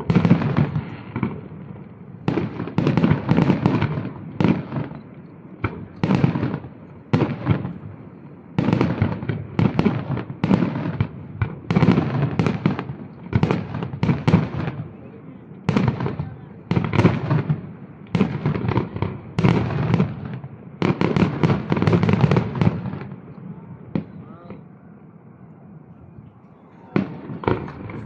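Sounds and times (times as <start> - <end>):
firework shells bursting: 27.0 - 28.0.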